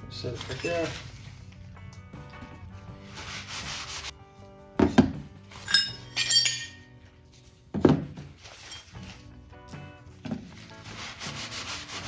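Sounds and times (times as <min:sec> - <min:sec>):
background music: 0:00.0 - 0:12.0
rag wiping steel: 0:03.0 - 0:04.1, 0:10.7 - 0:12.0
ringing metal clinks: 0:05.6 - 0:07.0.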